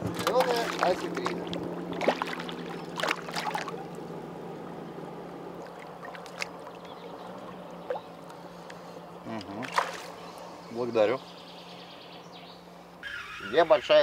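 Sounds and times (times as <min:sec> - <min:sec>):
soft water sounds: 0:00.0 - 0:11.8
fish splashing at water surface: 0:00.1 - 0:04.0, 0:05.6 - 0:08.4, 0:09.5 - 0:10.3.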